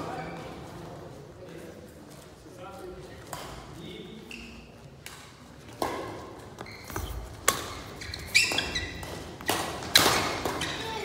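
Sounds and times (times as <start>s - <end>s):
shoe squeak on floor: 4.2s - 4.8s, 6.5s - 9.2s
rackets hitting shuttlecock: 5.0s - 11.0s.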